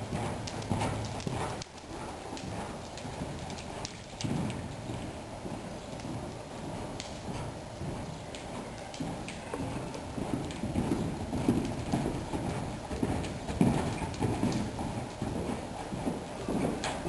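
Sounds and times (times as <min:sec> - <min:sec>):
horse hoofbeats on dirt: 0:00.0 - 0:17.0.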